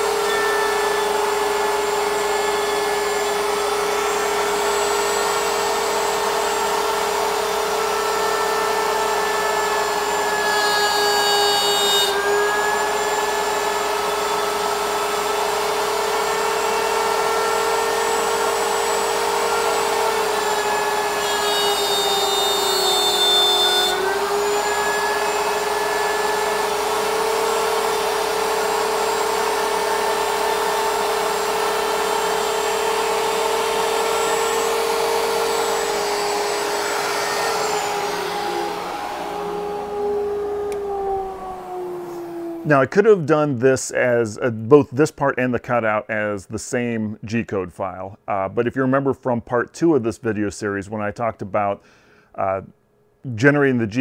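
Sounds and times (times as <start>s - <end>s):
router motor whining: 0.0s - 42.8s
router bit cutting plywood: 0.0s - 42.9s.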